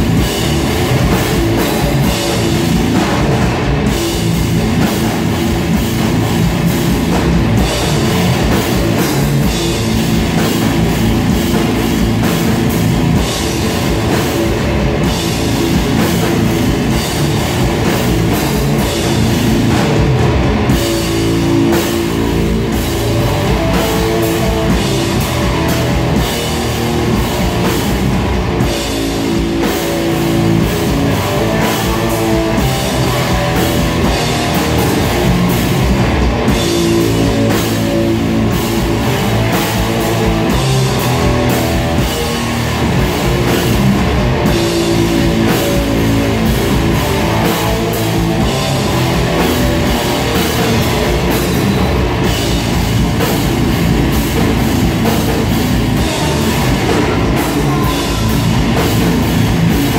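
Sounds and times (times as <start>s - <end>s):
metal band playing live: 0.0s - 59.9s.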